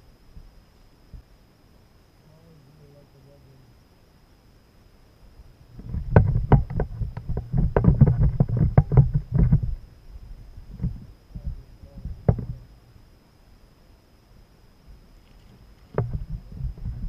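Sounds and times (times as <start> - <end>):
knocks on plastic kayak hull: 6.1 - 9.7.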